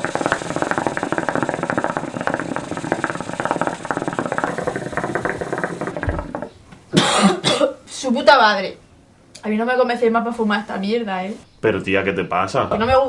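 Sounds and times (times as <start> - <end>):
hookah water bubbling: 0.0 - 7.6.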